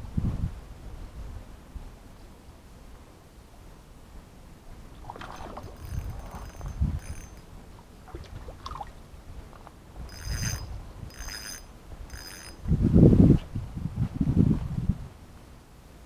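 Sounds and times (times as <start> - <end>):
splashing in shallow water: 4.9 - 6.7, 8.0 - 9.6
metallic jingling rattles: 5.4 - 7.6, 10.1 - 12.7.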